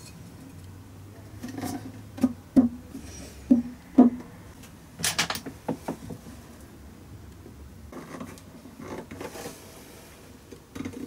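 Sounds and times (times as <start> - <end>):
hollow wooden knocks: 2.2 - 2.8, 3.5 - 4.4.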